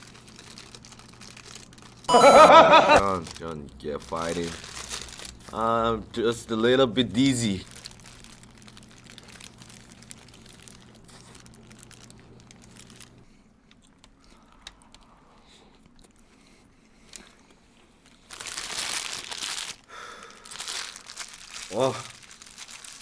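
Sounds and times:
paper wrapper crinkling: 0.0s - 2.1s, 2.7s - 5.7s, 7.1s - 14.1s, 18.0s - 23.0s
chewing and mouth clicks: 13.6s - 17.9s.

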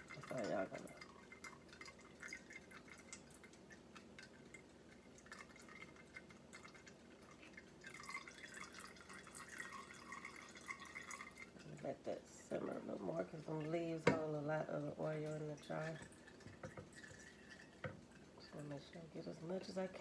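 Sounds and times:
oil dripping through a strainer: 0.0s - 20.0s.

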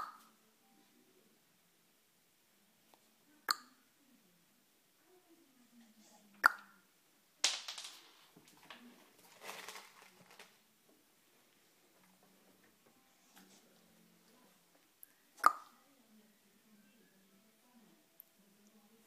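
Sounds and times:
scuffling and rustling: 8.4s - 10.6s.

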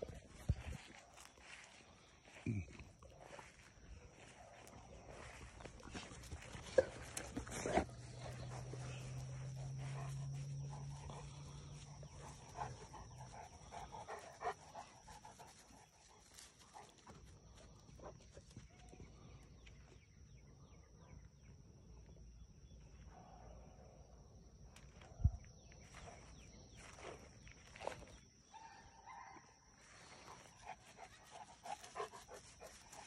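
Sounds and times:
soft footsteps on grass: 0.0s - 18.7s, 25.8s - 28.3s
dog panting: 5.9s - 17.1s, 30.5s - 33.0s.

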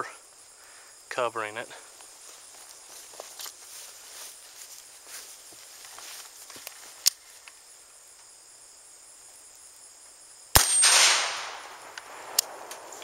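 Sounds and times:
rifle shot with echo: 10.6s - 12.9s.

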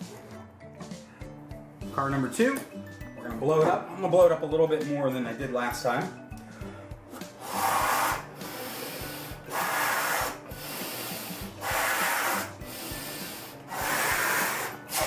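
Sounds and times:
person blowing up balloon: 7.1s - 15.0s.

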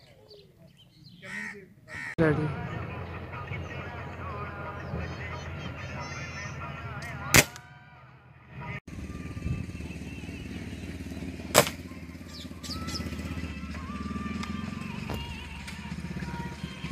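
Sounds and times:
air rifle shots: 7.3s - 7.6s, 11.5s - 11.9s.

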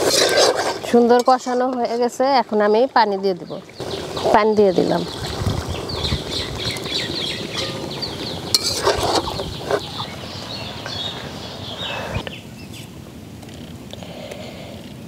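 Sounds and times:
metal spoon stirring and knocking pot: 0.0s - 2.2s, 8.5s - 9.3s.

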